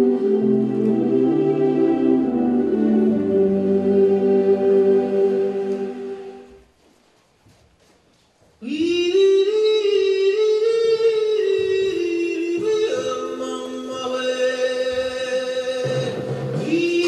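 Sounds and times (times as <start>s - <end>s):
high wordless voice singing: 8.6s - 17.0s.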